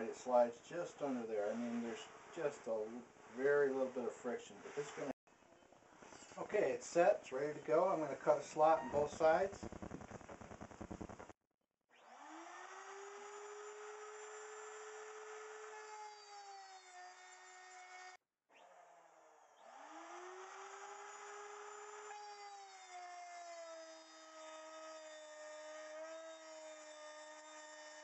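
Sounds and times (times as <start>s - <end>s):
wood router whining: 11.9s - 28.0s.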